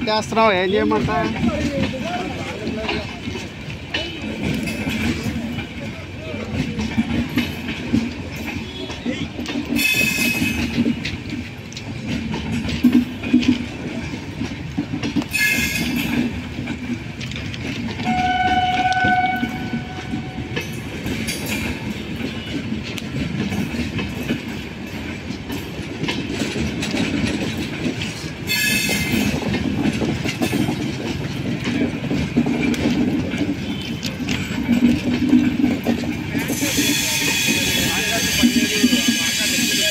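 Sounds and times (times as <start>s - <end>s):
train wheels clattering over joints: 0.0s - 39.9s
train horn: 18.0s - 20.5s, 36.6s - 39.9s.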